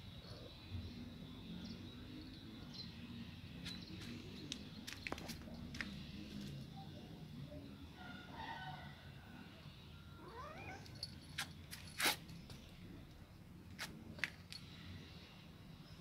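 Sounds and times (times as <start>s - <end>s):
cat meowing: 10.2s - 10.9s.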